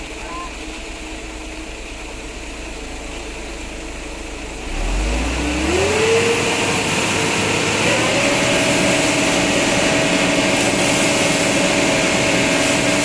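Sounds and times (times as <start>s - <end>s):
diesel truck engine revving: 0.0s - 13.0s
concrete pouring down chute: 5.1s - 13.0s.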